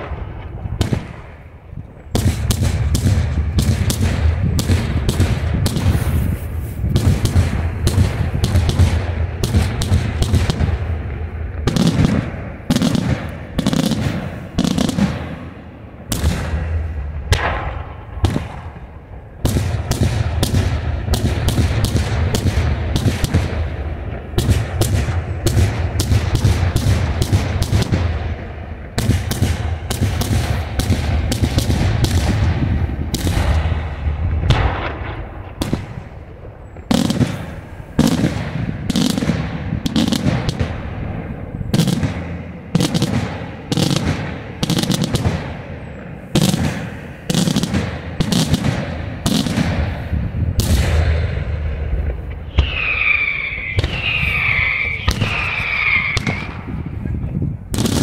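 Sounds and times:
low rumble: 0.0 - 21.1, 31.0 - 39.9, 49.0 - 57.8
fireworks bursting with sharp bangs: 0.0 - 58.0.

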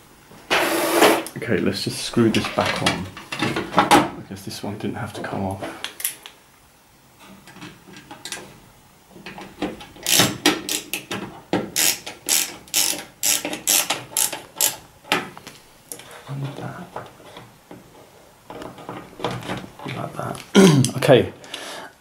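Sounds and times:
screwdriver clicking: 10.0 - 11.0, 11.8 - 14.8.

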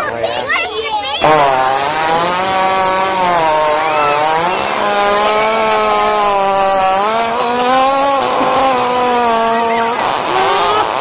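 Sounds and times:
hippopotamus farting: 1.2 - 11.0.

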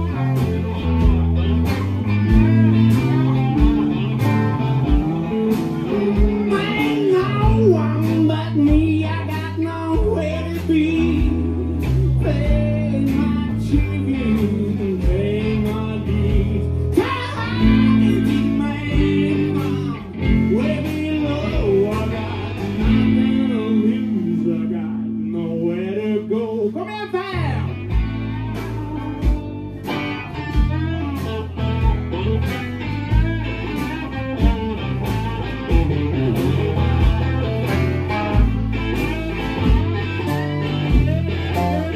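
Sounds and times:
electric guitar bending upward: 0.0 - 9.3, 27.6 - 41.9
live rock band playing: 0.0 - 41.9.

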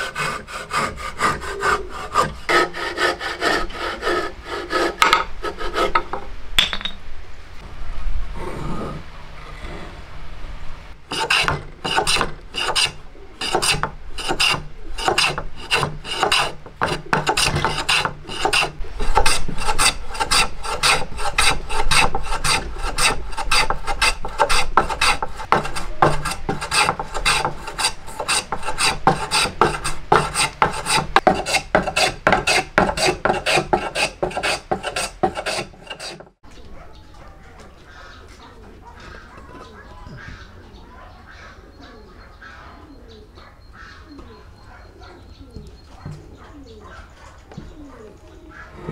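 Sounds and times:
hand plane rasping on wood: 0.0 - 6.1, 11.1 - 36.4.

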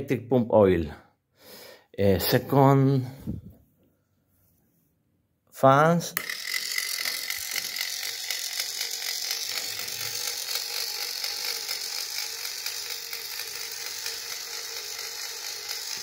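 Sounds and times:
electric oil pump ticking: 6.3 - 16.0.

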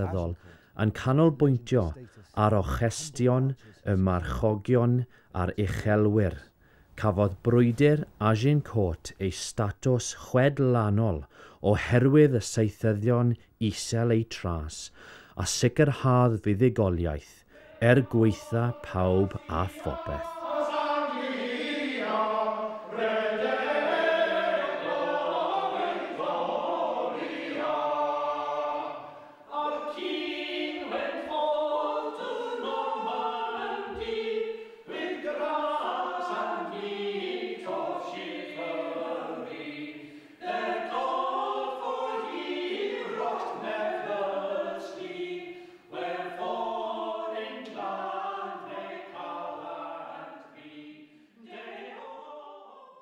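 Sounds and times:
choir singing: 17.5 - 53.0.

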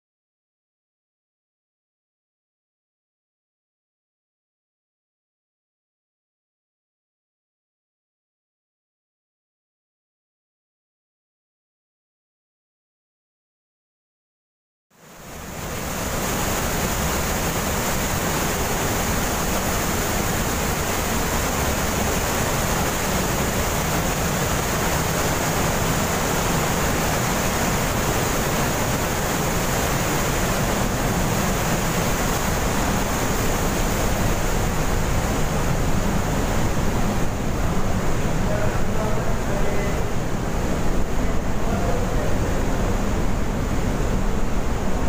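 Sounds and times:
waterfall rushing: 15.0 - 45.0.

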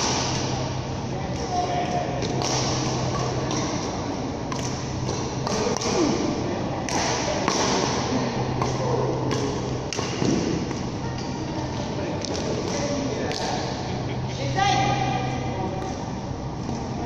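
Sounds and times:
racket hitting shuttlecock: 2.2 - 6.2, 6.8 - 10.9.

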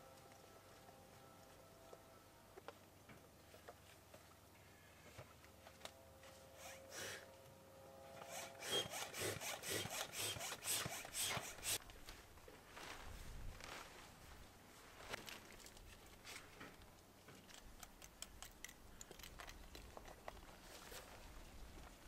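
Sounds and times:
hand air pump strokes: 6.5 - 7.2, 8.2 - 11.8.

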